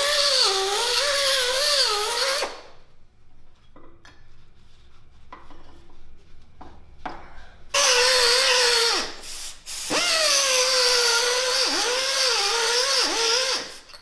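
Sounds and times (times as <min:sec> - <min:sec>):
exhaust air hiss: 0:07.2 - 0:14.0
air die grinder whining: 0:09.9 - 0:14.0.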